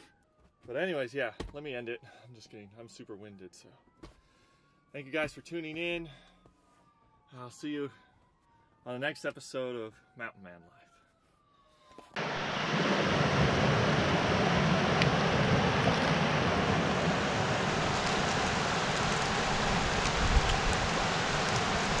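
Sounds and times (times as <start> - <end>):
creek water rushing over boulders: 12.2 - 22.0.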